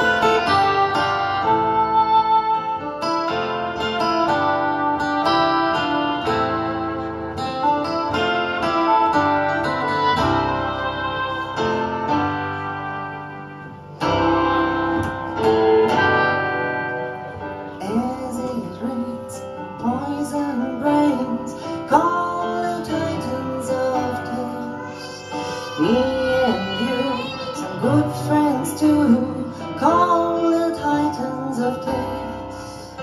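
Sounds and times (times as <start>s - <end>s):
reed instrument melody: 0.0s - 19.2s
live band playing: 0.0s - 33.0s
woman singing: 17.8s - 33.0s.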